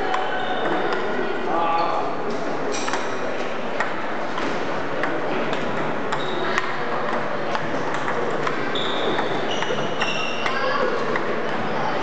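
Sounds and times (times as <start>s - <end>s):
steady background noise: 0.0s - 12.0s
table tennis balls clicking: 3.7s - 11.6s.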